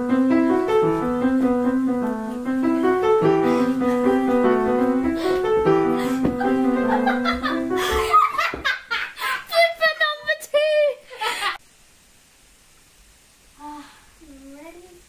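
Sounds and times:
piano notes and chords: 0.0 - 8.3.

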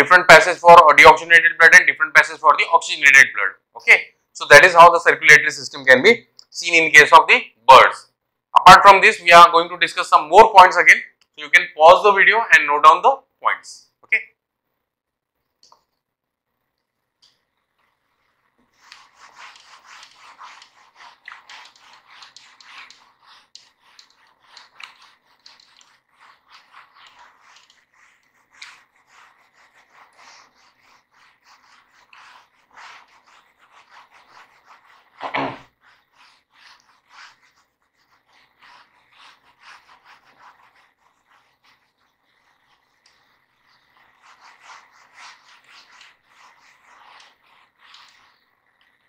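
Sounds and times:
duster rubbing on whiteboard: 17.2 - 49.0.

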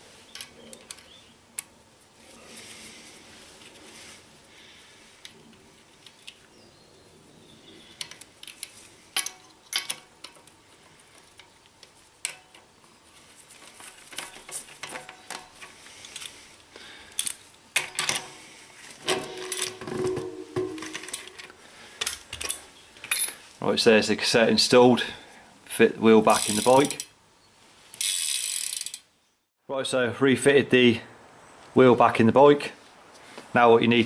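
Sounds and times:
metal sprockets clinking: 28.0 - 29.1.

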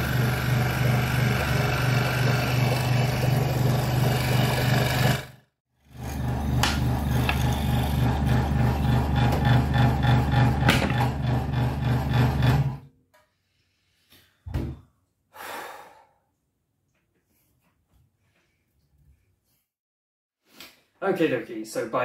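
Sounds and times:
scroll saw motor running: 0.0 - 12.7.

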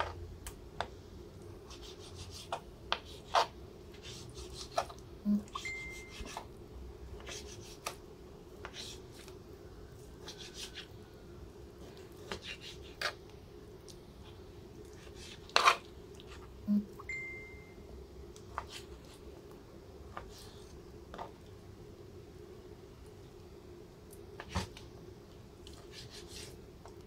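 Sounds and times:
steady low hum: 0.0 - 27.0
thin high tone: 5.3 - 6.3, 16.7 - 17.9
knife cutting on plastic board: 12.2 - 13.2, 15.0 - 15.8, 25.7 - 26.6.

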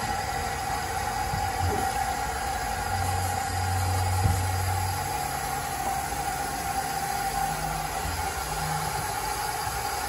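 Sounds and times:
water running through hoses: 0.0 - 10.0.

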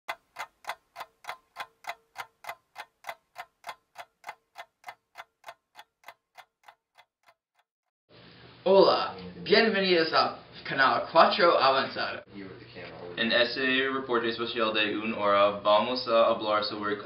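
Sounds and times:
clock-like ticking: 0.1 - 7.7.

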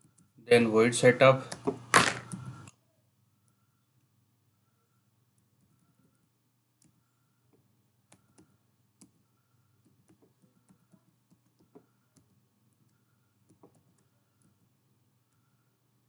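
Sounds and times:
computer keyboard keystrokes: 13.4 - 14.6.

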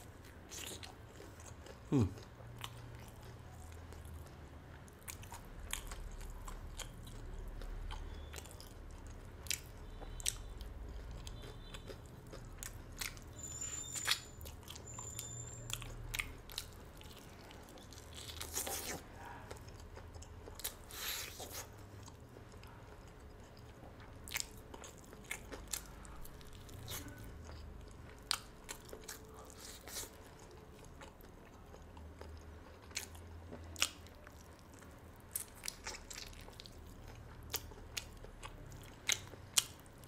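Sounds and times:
biting and chewing fried chicken: 0.0 - 40.0.

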